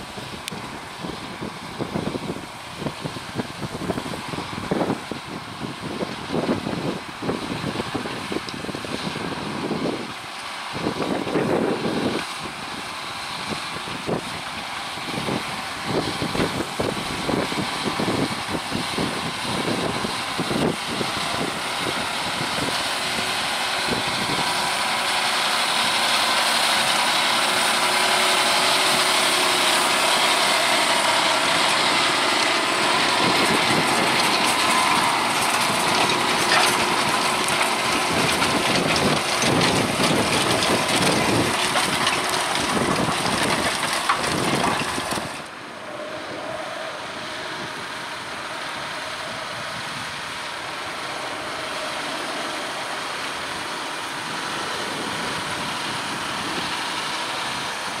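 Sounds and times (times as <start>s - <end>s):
tractor diesel engine under load: 0.0s - 58.0s
plough crackling through soil: 14.1s - 45.6s.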